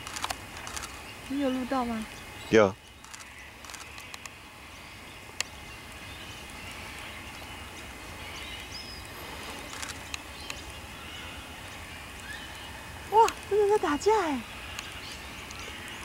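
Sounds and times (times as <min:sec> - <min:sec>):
sharp clicks: 0:00.0 - 0:01.4, 0:03.0 - 0:04.4.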